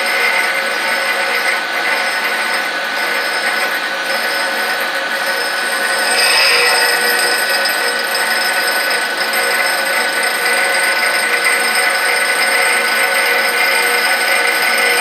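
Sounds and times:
grinding wheel whine: 0.0s - 15.0s
grinding hiss: 5.4s - 8.5s.

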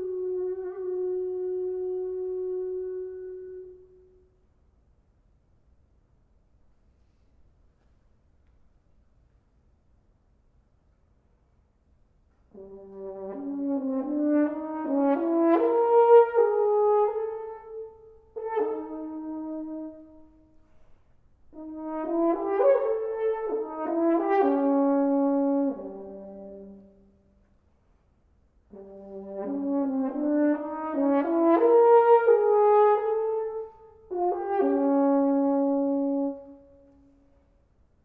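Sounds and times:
french horn playing: 0.0s - 4.3s, 12.5s - 27.4s, 28.6s - 37.5s.

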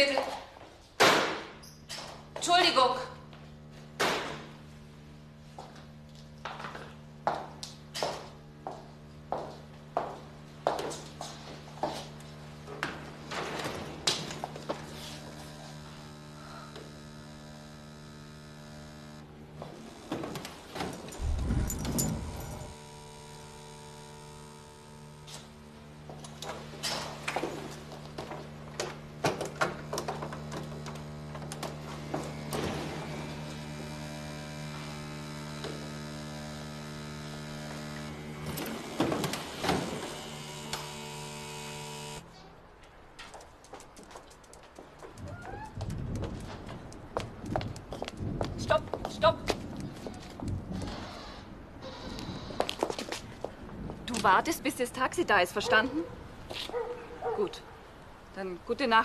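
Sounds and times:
electrical mains hum: 0.0s - 59.0s
vibrator buzzing: 1.0s - 42.5s.

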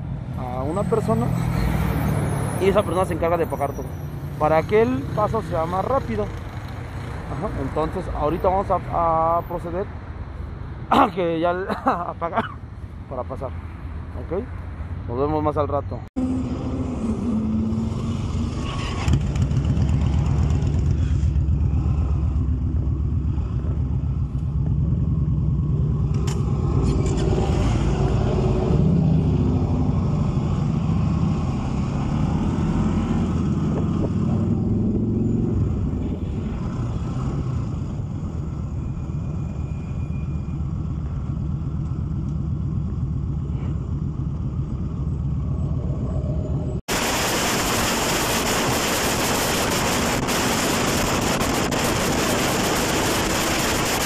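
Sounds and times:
motorcycle engines running: 4.4s - 7.9s, 16.2s - 28.3s, 48.1s - 54.0s
wind on microphone: 33.2s - 36.7s.

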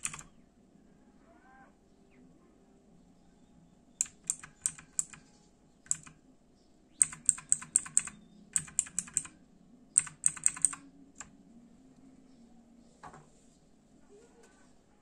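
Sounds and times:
mechanical keyboard key clicks: 0.0s - 0.3s, 4.0s - 5.2s, 5.9s - 6.2s, 7.0s - 9.3s, 10.0s - 11.3s.

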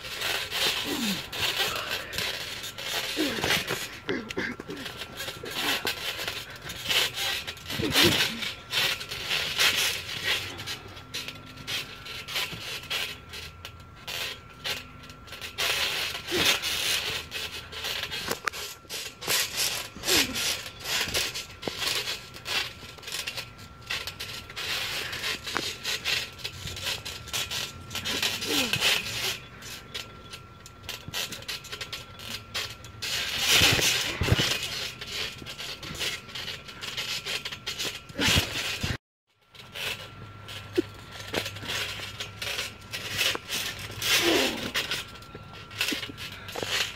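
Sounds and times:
bouncing and stomping on trampoline mat: 0.1s - 11.0s, 33.1s - 39.0s.

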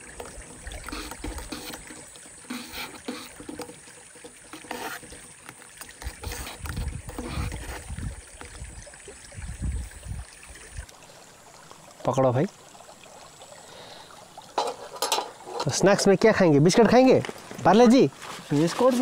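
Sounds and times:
creek water running: 0.0s - 19.0s
camp gear clicks and knocks: 0.2s - 7.9s, 14.6s - 15.8s.

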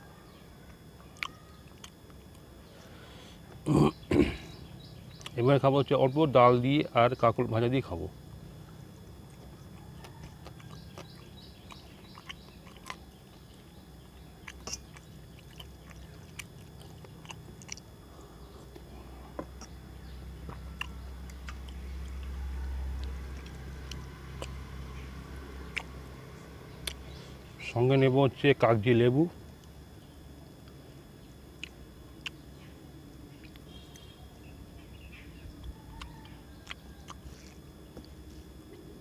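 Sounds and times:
chewing: 0.7s - 2.4s, 8.6s - 26.2s, 26.8s - 27.3s, 35.6s - 38.9s.

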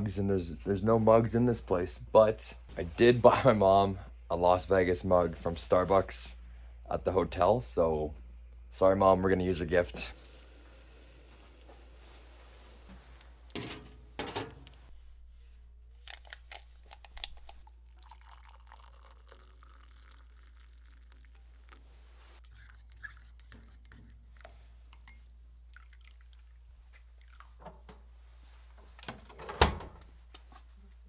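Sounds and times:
kitchenware clinks and knocks: 13.6s - 14.7s.

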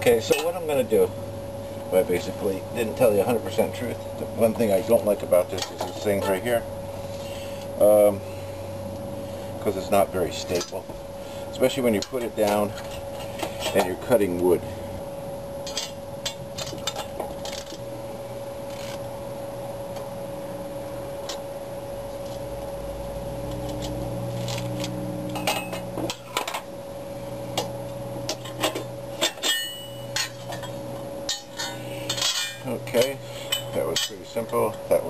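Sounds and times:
steady low hum: 0.0s - 35.0s
wrench clinking and scraping on metal: 15.6s - 17.8s, 25.4s - 26.6s, 28.3s - 34.8s.

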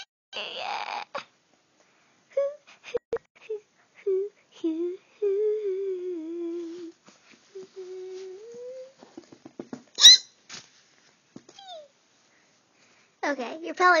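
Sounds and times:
child humming and whining: 0.4s - 1.3s, 2.3s - 2.7s, 3.4s - 9.0s.

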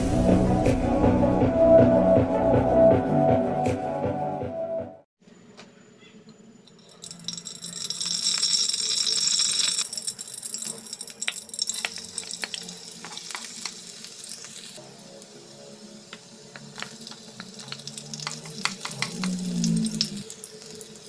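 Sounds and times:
oil pouring: 6.7s - 14.8s, 16.1s - 21.0s
oil crackling in pan: 6.7s - 21.0s.

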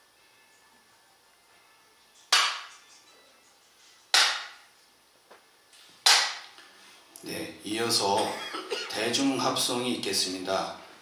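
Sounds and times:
bamboo clapper claps: 2.3s - 2.7s, 4.1s - 4.6s, 6.0s - 6.5s.

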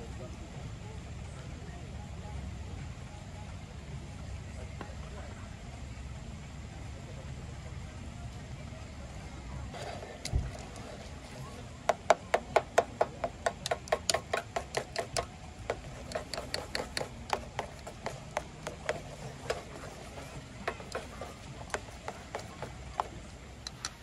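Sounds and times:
chopsticks tapping metal pot: 11.9s - 24.0s.

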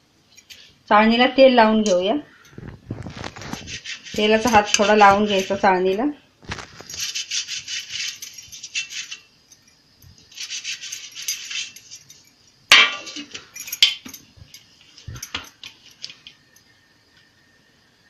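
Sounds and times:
hand rasping over steel sieve: 2.9s - 9.3s, 10.3s - 12.0s
steel kitchenware clanging: 3.6s - 6.2s, 10.3s - 14.2s.

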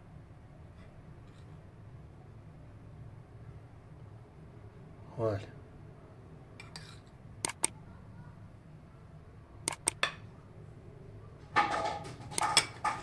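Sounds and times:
dishes clattering: 11.5s - 13.0s.

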